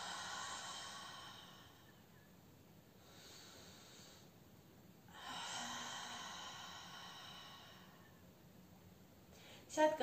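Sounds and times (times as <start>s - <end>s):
woman breathing deeply: 0.0s - 2.3s, 2.9s - 4.5s, 5.1s - 8.3s.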